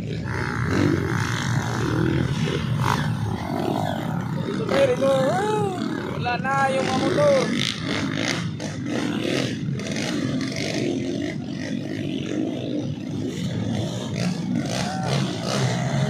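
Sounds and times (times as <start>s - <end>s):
dirt bike engines running: 0.0s - 16.0s
voices of spectators: 1.8s - 8.2s, 10.8s - 16.0s.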